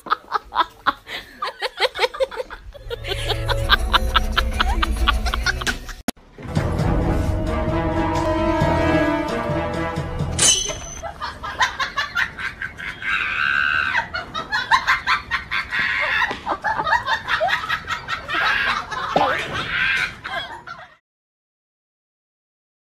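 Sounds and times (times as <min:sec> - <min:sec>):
background music: 0:02.8 - 0:11.0.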